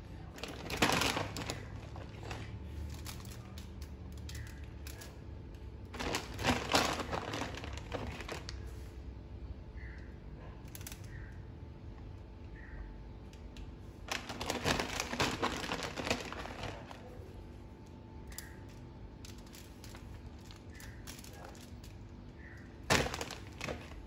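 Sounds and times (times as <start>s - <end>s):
low steady hum: 0.0s - 24.0s
cheese pattering: 0.1s - 8.8s, 13.4s - 24.0s
foil crinkling: 0.2s - 5.2s, 5.9s - 8.8s, 14.0s - 17.3s, 18.4s - 24.0s.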